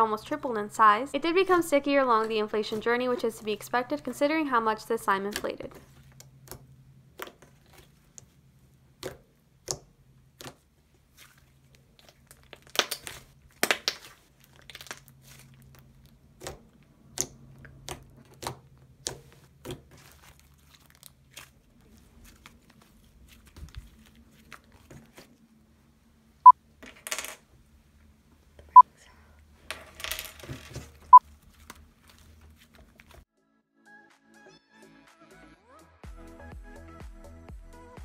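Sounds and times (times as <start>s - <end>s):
slime squishing with wet clicks: 6.1s - 25.3s.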